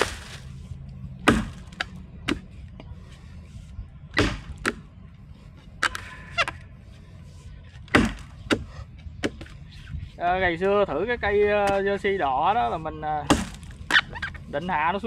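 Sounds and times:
axe chopping wooden log: 0:01.2 - 0:02.5, 0:04.1 - 0:04.9, 0:07.9 - 0:09.5, 0:13.3 - 0:14.1.

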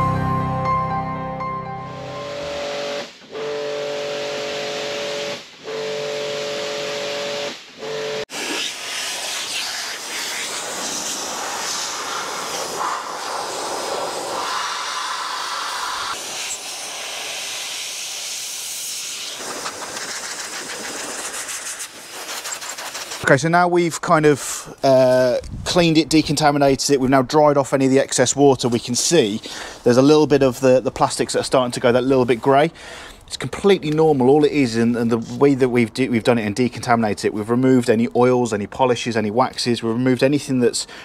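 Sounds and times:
air blower hissing: 0:02.3 - 0:23.3.

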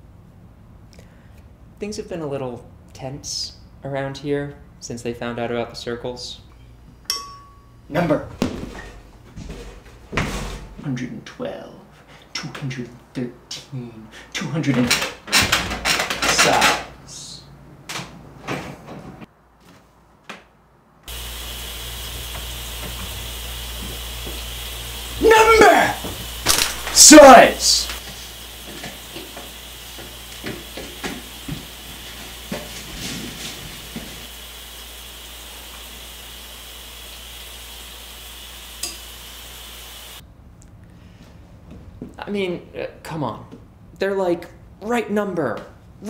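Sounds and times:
room noise hiss: 0:00.0 - 0:17.9, 0:19.2 - 0:46.0
spoon clinking glass bowl: 0:07.1 - 0:07.7
shower water spray hissing: 0:21.1 - 0:40.2.

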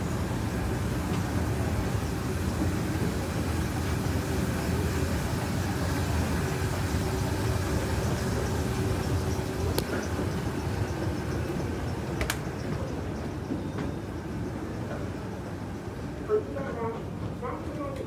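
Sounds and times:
escalator mechanical hum: 0:00.0 - 0:18.0
sharp clicks: 0:12.2 - 0:12.4.

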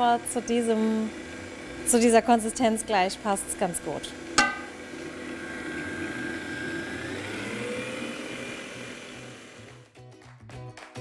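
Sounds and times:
stand mixer motor whine: 0:00.0 - 0:09.8.

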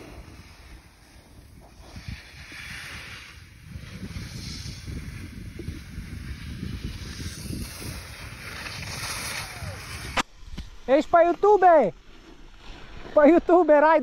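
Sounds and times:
wind buffeting microphone: 0:00.0 - 0:10.2
skis scraping across snow: 0:00.0 - 0:10.3, 0:10.9 - 0:14.0.

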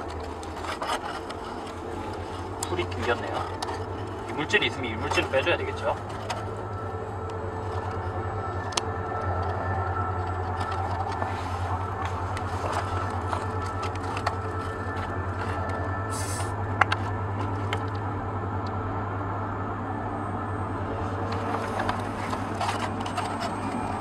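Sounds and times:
foam pieces clicking and rubbing: 0:00.0 - 0:06.6
steady low hum: 0:00.0 - 0:24.0
brief hiss: 0:16.1 - 0:16.5.

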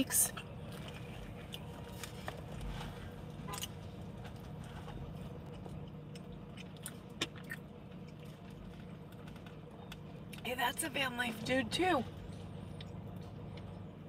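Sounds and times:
car cabin hum: 0:00.0 - 0:14.0.

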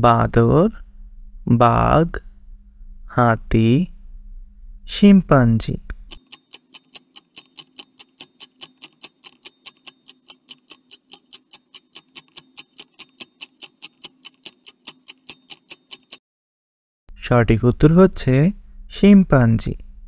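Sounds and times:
clock ticking fast: 0:06.1 - 0:16.2.

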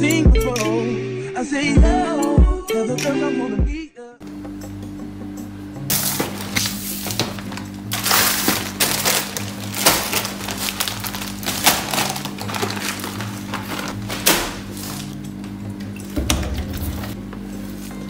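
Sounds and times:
background song: 0:00.0 - 0:04.8
belongings rustling and clattering: 0:05.9 - 0:15.1.

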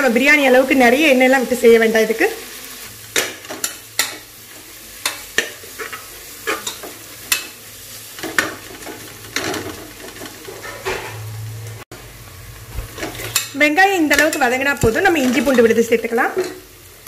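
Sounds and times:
onions sizzling in oil: 0:00.0 - 0:17.0
metal spatula scraping a pot: 0:03.2 - 0:07.6, 0:08.2 - 0:11.3.

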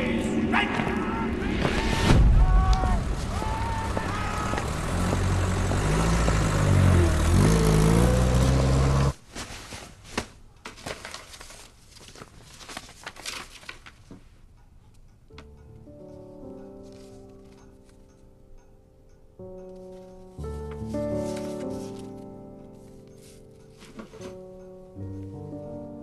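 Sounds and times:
vehicle engine revving: 0:03.9 - 0:09.2
paper rustling: 0:09.2 - 0:14.4, 0:16.8 - 0:18.0, 0:19.7 - 0:24.5.

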